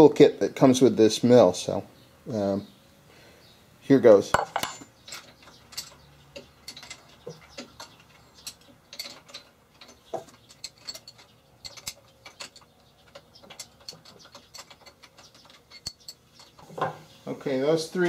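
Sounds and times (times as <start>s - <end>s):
metal wrench clicking on bolts: 4.7s - 16.5s.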